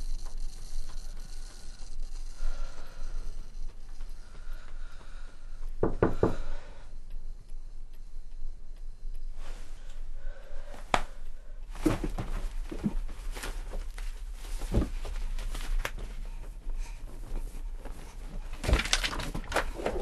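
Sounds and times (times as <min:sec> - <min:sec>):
low steady hum: 0:00.0 - 0:20.0
rustles: 0:07.6 - 0:20.0.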